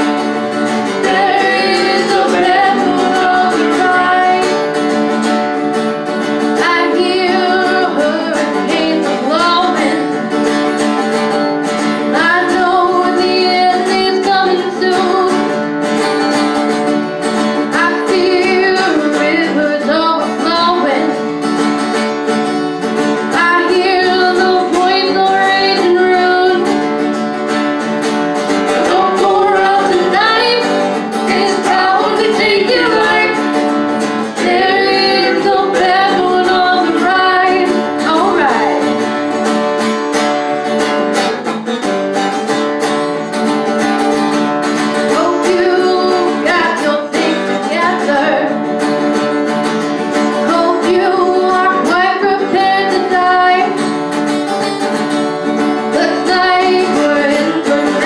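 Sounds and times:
acoustic guitar: 0.0s - 58.0s
woman singing: 0.8s - 4.9s, 6.5s - 10.4s, 12.0s - 15.6s, 17.6s - 21.3s, 23.2s - 26.9s, 28.6s - 39.1s, 45.0s - 48.7s, 50.3s - 53.9s, 55.8s - 58.0s.

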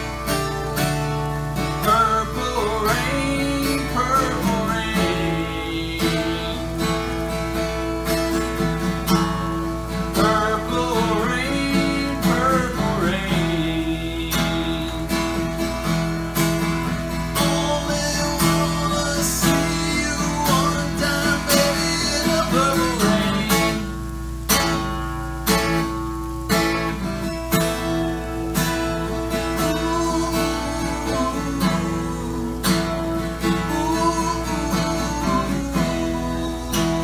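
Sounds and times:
acoustic guitar strumming: 0.0s - 37.0s
man singing: 1.6s - 7.4s, 10.0s - 15.8s, 17.2s - 24.4s, 28.8s - 37.0s.

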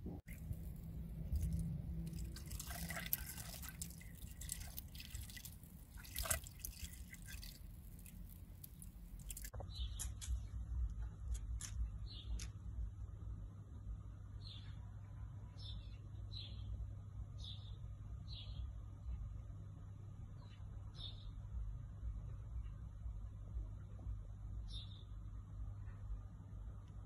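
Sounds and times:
small water splashes: 0.2s - 9.5s
water trickling and dripping: 0.2s - 9.5s.

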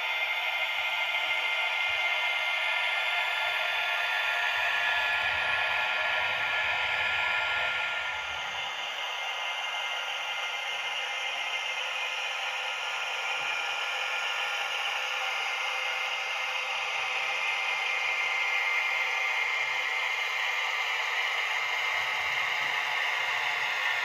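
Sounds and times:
model locomotive engine drone: 0.0s - 24.0s.

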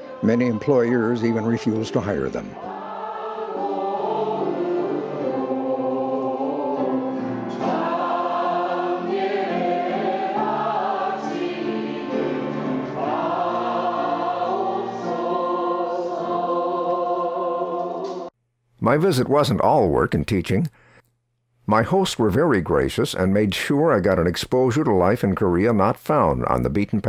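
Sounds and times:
choir singing a hymn: 0.0s - 18.3s.

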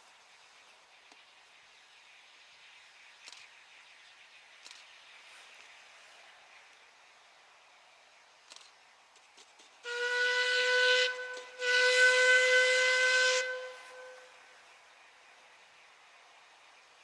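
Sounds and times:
steam locomotive whistle blasts: 9.8s - 14.4s.

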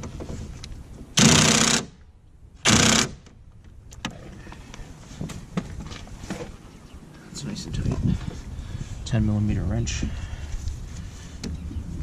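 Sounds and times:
cordless power driver bursts: 1.2s - 2.0s, 2.6s - 3.2s.

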